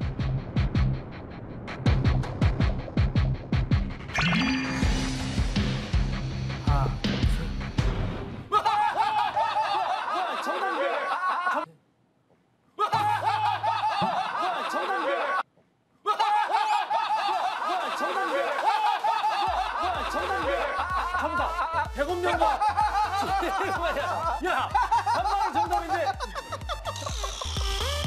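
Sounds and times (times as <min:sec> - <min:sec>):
background music: 0:00.0 - 0:10.8, 0:12.8 - 0:15.3, 0:17.5 - 0:28.0
group of people laughing: 0:08.5 - 0:11.7, 0:12.8 - 0:15.4, 0:16.0 - 0:27.8.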